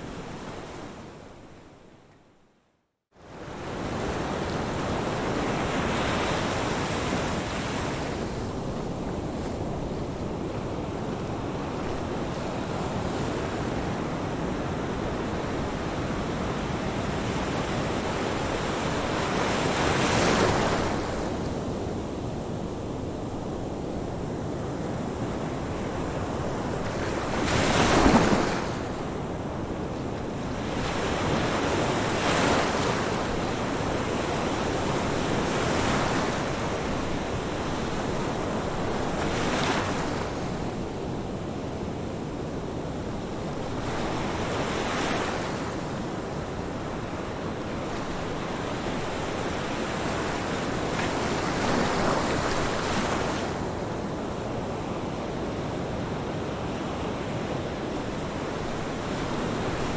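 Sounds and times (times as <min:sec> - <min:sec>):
ocean waves breaking: 0:25.9 - 0:29.4, 0:43.7 - 0:53.9.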